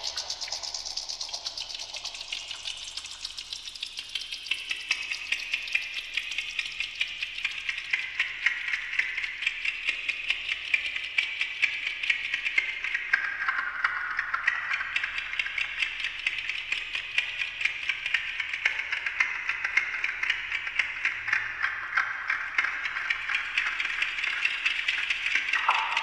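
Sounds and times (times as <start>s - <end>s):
delayed alarm clock ticking: 24.8s - 26.0s.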